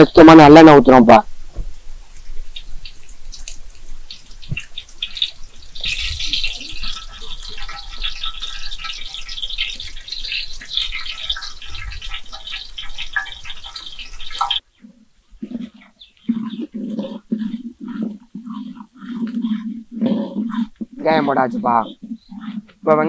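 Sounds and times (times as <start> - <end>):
oil sizzling and crackling: 0.2 - 23.0
oil pouring into pan: 4.1 - 14.6.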